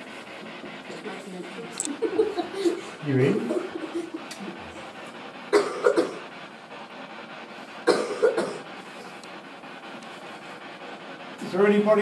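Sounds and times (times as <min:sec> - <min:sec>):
person coughing: 0:05.5 - 0:06.2, 0:07.9 - 0:08.6.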